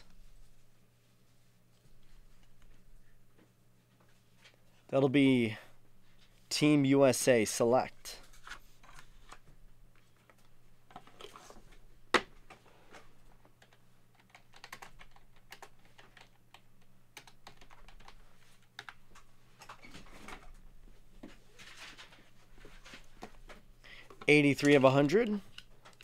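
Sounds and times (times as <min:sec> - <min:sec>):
keyboard typing clicks: 0:13.6 - 0:16.6.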